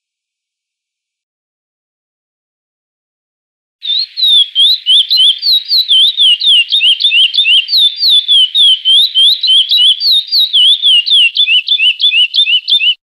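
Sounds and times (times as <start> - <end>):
finch whistled song: 3.8 - 13.0.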